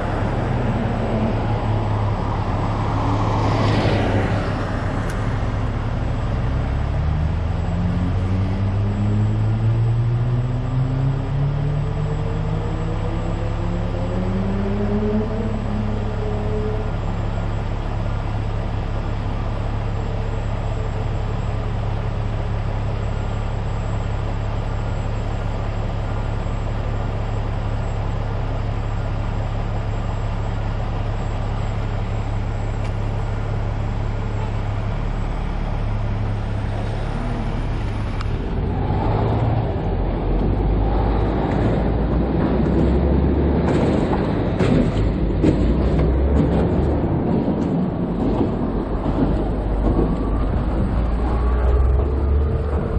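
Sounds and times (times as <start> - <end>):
road and traffic rumble: 0.0 - 52.9.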